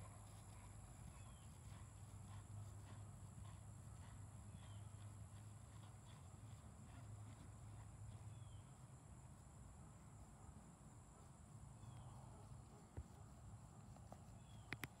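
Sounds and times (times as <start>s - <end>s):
sharp clicks: 14.6s - 15.0s.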